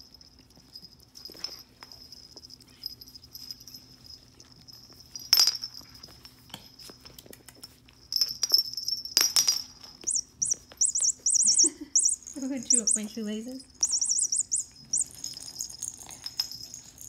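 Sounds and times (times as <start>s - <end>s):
puppies squeaking and whining: 10.0s - 16.2s
puppy squeals: 10.1s - 15.2s.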